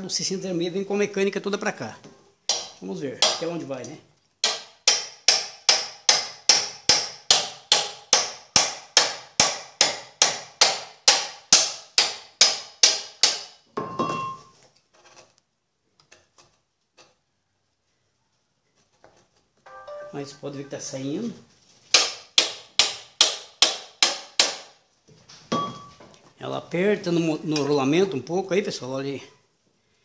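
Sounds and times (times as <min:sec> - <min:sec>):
ringing metal clank: 0:13.8 - 0:14.5, 0:25.5 - 0:26.0.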